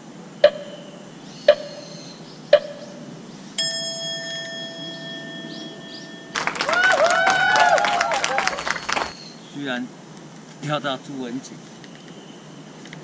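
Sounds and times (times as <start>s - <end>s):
sharp clock ticks: 1.5s - 1.7s
bell-like ding: 3.6s - 6.8s.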